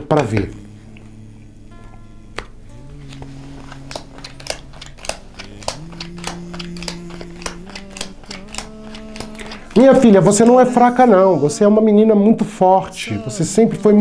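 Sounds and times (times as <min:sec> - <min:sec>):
soft background music chords: 0:00.0 - 0:14.0
shells clicking: 0:03.6 - 0:10.0.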